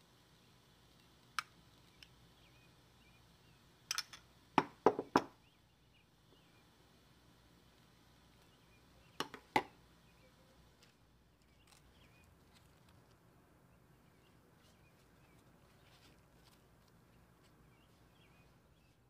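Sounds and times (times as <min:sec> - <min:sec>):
faint bird chirps: 0:01.8 - 0:03.6, 0:05.4 - 0:06.8, 0:08.3 - 0:09.3, 0:10.0 - 0:12.9, 0:13.6 - 0:19.0.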